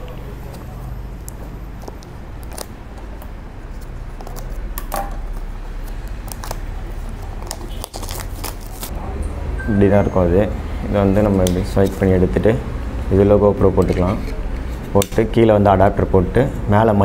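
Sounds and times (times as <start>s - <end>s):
cardboard packaging rustling: 0.0s - 4.6s, 5.3s - 8.9s.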